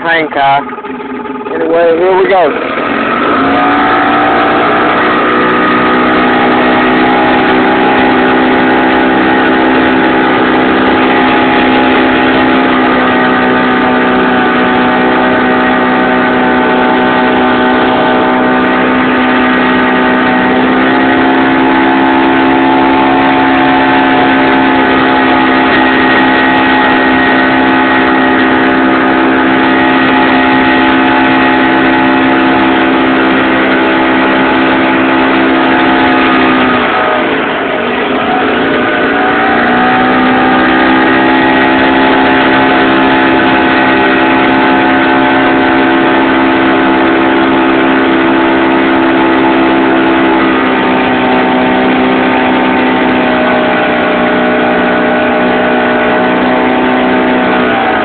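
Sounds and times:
outboard motor running: 0.0s - 58.0s.

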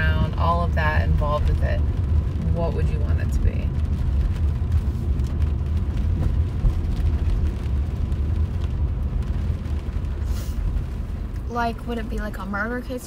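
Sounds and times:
car cabin road rumble: 0.0s - 13.0s
brief hiss: 10.2s - 10.7s.

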